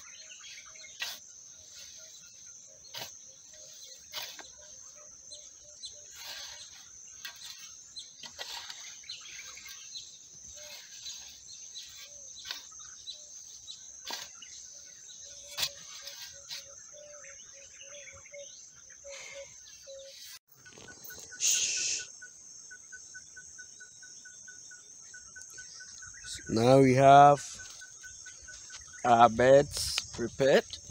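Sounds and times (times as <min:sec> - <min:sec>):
spade scraping and chopping sawdust: 0:00.0 - 0:17.2
high-pitched insect trill: 0:00.0 - 0:30.9.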